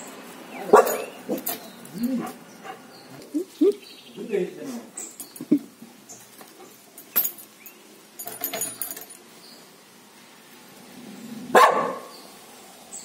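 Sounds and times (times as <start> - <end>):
dog barking: 0.6 - 1.4, 11.5 - 12.1
metal chain clinking: 0.7 - 2.4, 5.0 - 5.6, 6.2 - 9.3.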